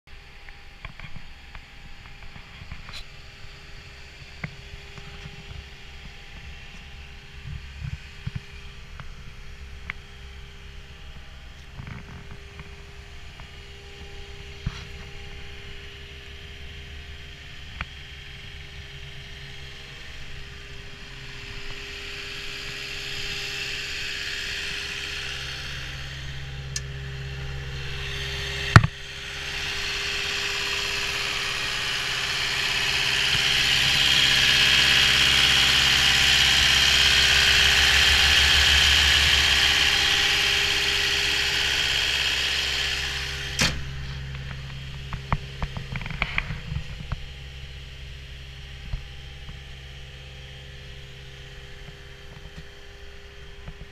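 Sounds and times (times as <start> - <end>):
diesel engine idling: 2.3 - 53.7.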